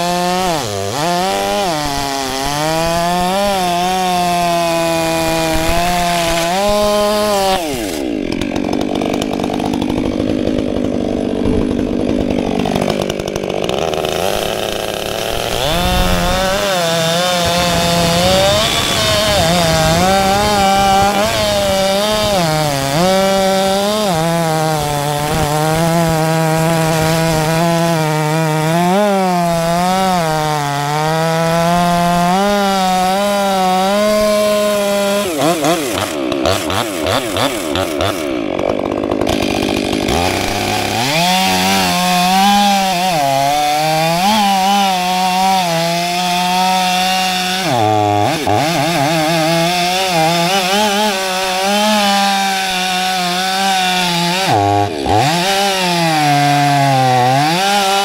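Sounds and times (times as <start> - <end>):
chainsaw cutting logs: 0.0 - 58.0.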